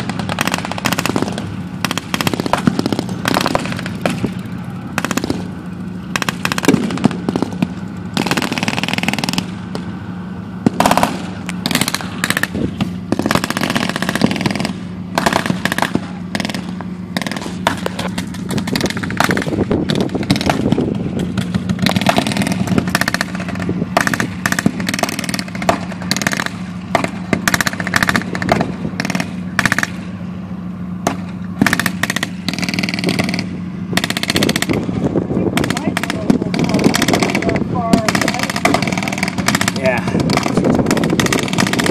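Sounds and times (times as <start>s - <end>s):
machine gun firing: 0.0s - 4.3s, 4.9s - 5.5s, 6.1s - 9.8s, 10.7s - 20.8s, 21.4s - 30.0s, 31.0s - 34.8s, 35.6s - 41.9s
low engine hum: 0.0s - 41.9s
blank gunfire shots: 10.7s - 17.8s, 38.0s - 41.9s.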